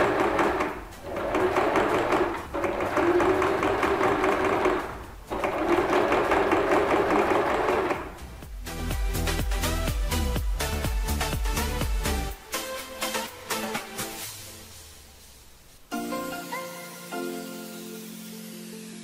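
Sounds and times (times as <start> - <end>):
electric sewing machine stitching: 0.0 - 8.3.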